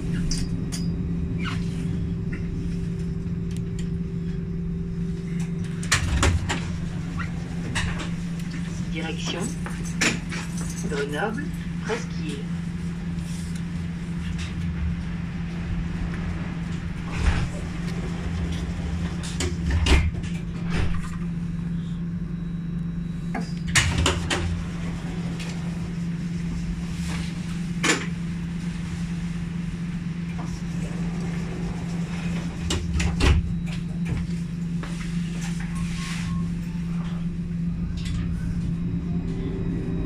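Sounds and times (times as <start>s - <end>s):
tram equipment humming: 0.0s - 40.0s.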